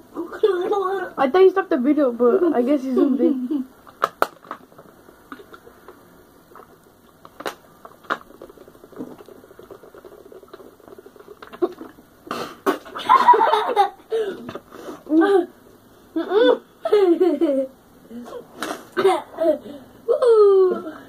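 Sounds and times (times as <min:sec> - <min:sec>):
boy's voice: 0:00.2 - 0:01.2
plastic bottles crackling: 0:03.8 - 0:13.0
water gulping from bottles: 0:04.6 - 0:13.0.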